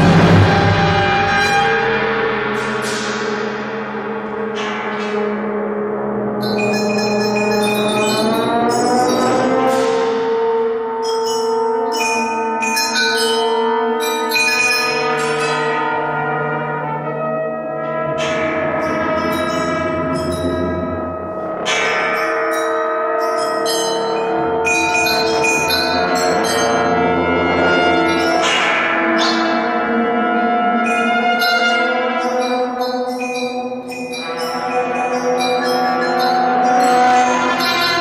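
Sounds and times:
bell-like metal percussion: 0.0 - 5.6, 6.2 - 16.6, 17.3 - 38.0
held brass chords: 13.4 - 32.8.

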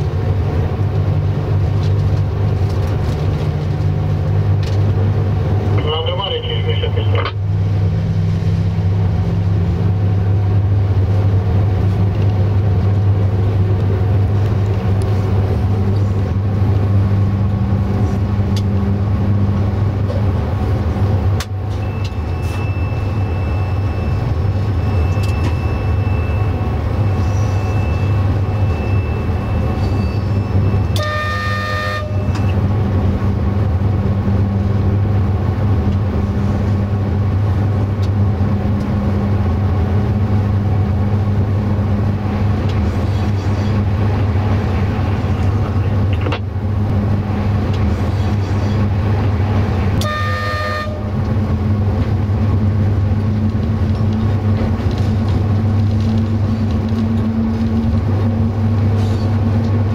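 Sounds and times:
locomotive low hum: 0.0 - 59.9
wheel and rail rumbling: 0.0 - 59.9
train horn: 30.9 - 32.4, 50.0 - 51.2.

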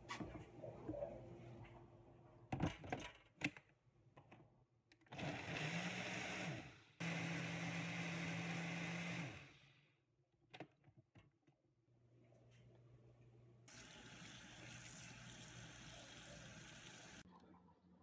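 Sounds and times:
blender motor running: 5.2 - 9.8.

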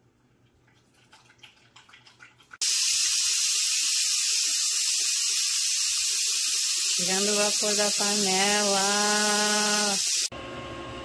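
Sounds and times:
steam hissing from valve: 2.6 - 10.3.

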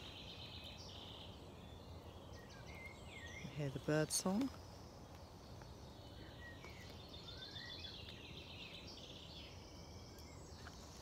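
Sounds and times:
birds chirping and trilling: 0.0 - 11.0.

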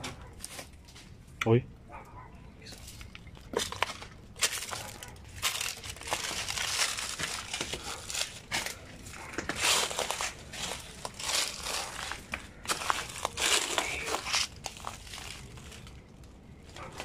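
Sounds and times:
footsteps crunching dry leaves: 2.7 - 16.0.

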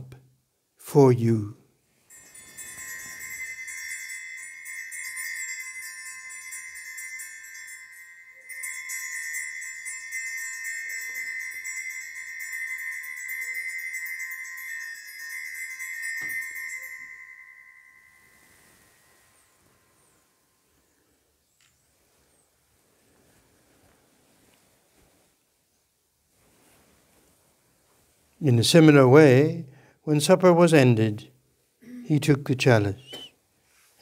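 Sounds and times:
altar bells jingling: 1.9 - 21.1, 31.9 - 33.2.

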